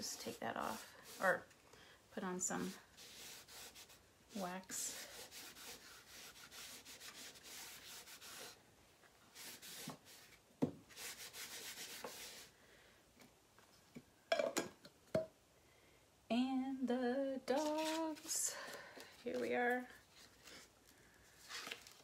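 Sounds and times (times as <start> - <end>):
wax applicator rubbing on wood: 2.6 - 4.0, 4.8 - 8.6.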